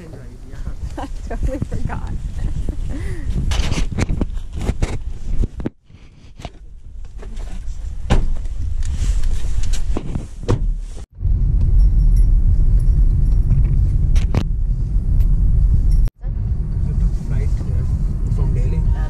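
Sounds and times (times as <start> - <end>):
car driving on rough road: 6.5 - 19.0.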